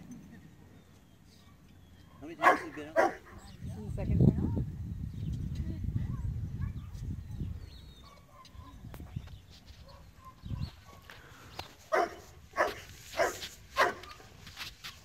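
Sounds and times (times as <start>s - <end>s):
dog barking: 2.2s - 3.4s, 11.9s - 14.3s.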